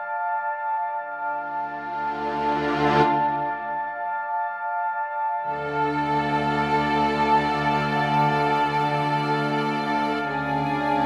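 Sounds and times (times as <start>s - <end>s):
orchestral film music chords: 1.5s - 3.9s, 5.5s - 11.0s.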